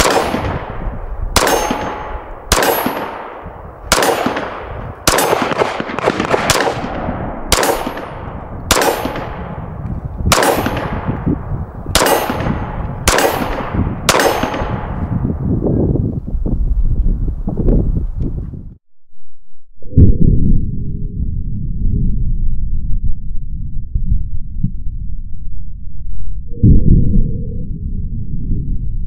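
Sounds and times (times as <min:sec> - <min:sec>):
pistol shots with echo: 0:00.0 - 0:15.1.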